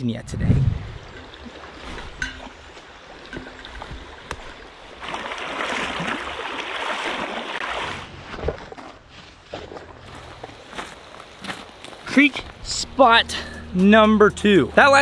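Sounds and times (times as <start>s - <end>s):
creek water running over rocks: 1.0s - 8.1s.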